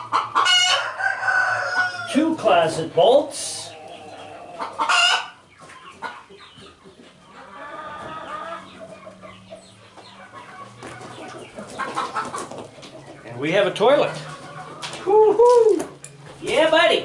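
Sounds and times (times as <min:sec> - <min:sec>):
chickens clucking and cackling: 0:00.0 - 0:17.0.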